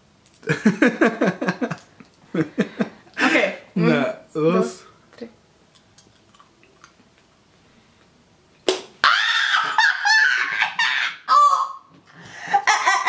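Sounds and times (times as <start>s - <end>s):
chewing clicks: 5.7s - 7.3s
woman squealing in disgust: 9.0s - 11.9s.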